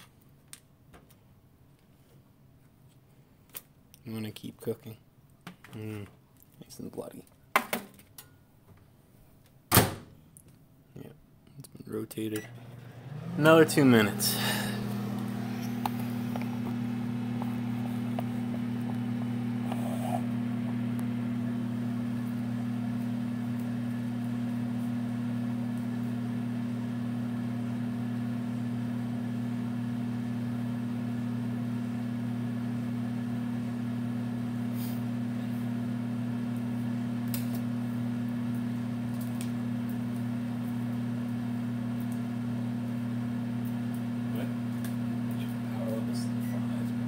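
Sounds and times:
microwave oven humming: 12.2s - 47.0s.

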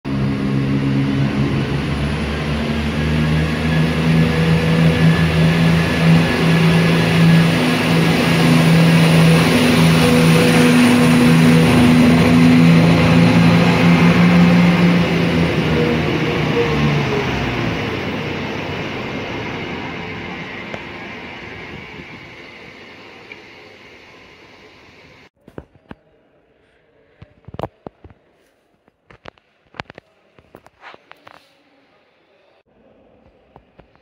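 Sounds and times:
train engines droning: 0.1s - 25.3s
wheel and rail noise: 0.1s - 25.3s.

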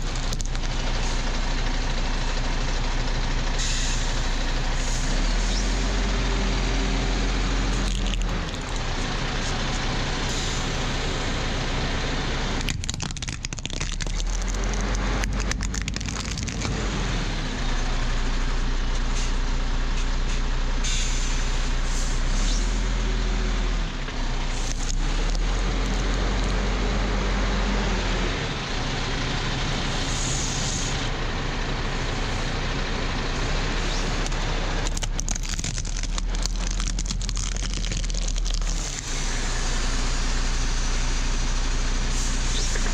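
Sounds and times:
plastic cracking: 0.0s - 0.8s, 7.7s - 8.9s, 12.6s - 16.8s, 34.2s - 39.0s
truck engine low rumble: 0.0s - 42.9s.

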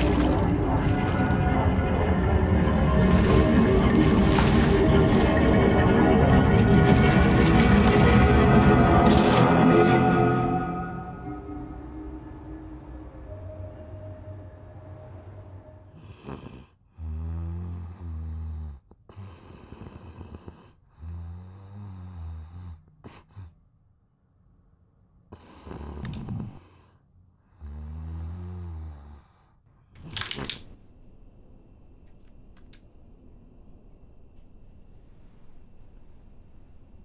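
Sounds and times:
person snoring: 15.9s - 23.6s, 25.3s - 29.6s
quiet breaths: 15.9s - 23.7s, 25.3s - 29.9s.

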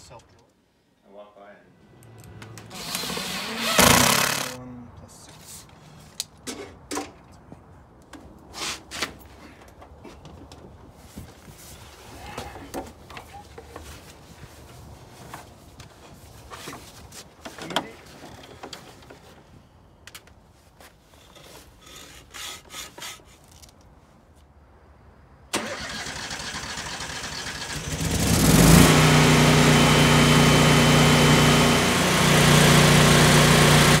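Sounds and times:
generator engine running: 2.1s - 4.6s, 27.8s - 34.0s.

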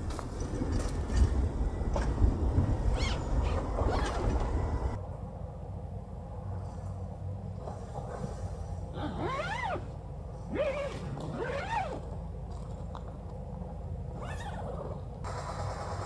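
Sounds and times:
zipper being pulled: 9.0s - 9.9s, 10.5s - 12.1s.

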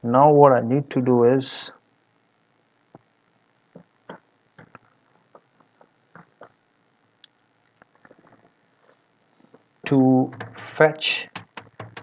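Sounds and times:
computer keyboard and mouse clicks: 10.3s - 12.0s.

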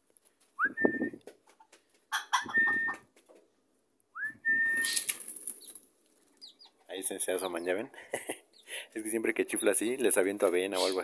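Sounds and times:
person whistling: 0.6s - 1.2s, 2.6s - 3.0s, 4.2s - 5.0s.

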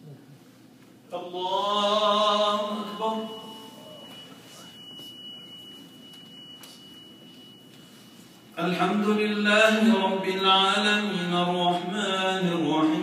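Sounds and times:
faint high-pitched tone: 2.4s - 8.1s.

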